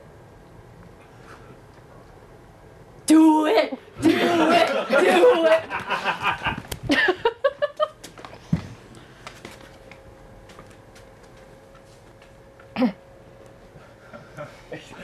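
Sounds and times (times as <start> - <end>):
faint steady hum: 0.0 - 15.0
laughter: 4.0 - 8.0.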